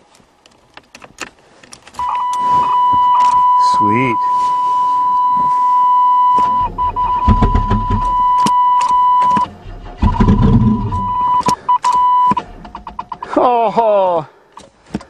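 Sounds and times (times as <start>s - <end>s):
high-pitched dashboard warning buzzer: 2.0s - 12.4s
car starter cranking engine: 6.4s - 13.3s
starter clicking: 6.4s - 13.3s.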